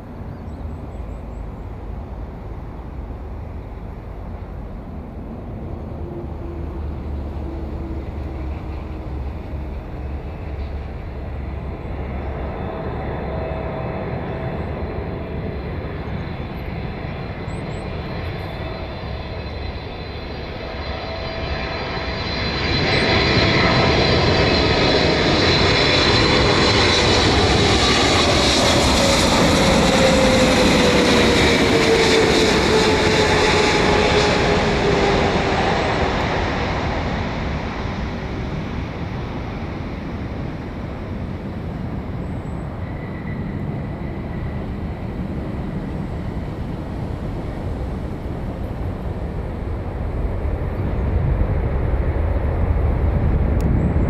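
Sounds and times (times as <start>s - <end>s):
jet engines roaring: 1.7s - 54.0s
engine whine gliding down: 17.7s - 41.2s.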